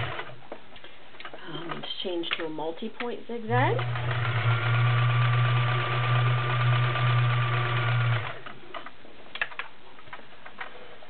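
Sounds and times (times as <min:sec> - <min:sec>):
sewing machine running: 0:00.0 - 0:00.4, 0:03.7 - 0:08.5.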